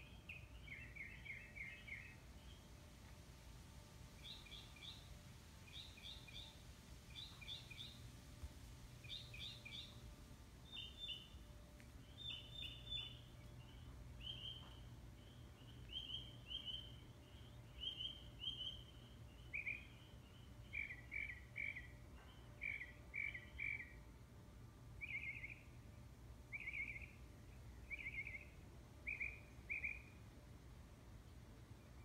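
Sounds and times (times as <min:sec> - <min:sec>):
bird chirping: 0:00.0 - 0:02.7, 0:04.2 - 0:08.1, 0:09.0 - 0:11.4, 0:12.0 - 0:24.0, 0:25.0 - 0:25.7, 0:26.5 - 0:30.2
faint low hum: 0:00.0 - 0:32.0.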